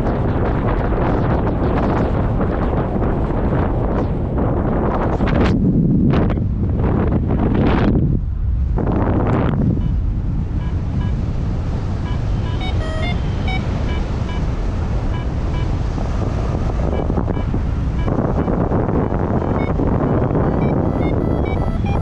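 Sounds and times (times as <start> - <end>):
wind buffeting microphone: 0.0 - 22.0
faint short beeps: 12.1 - 14.4, 19.4 - 22.0.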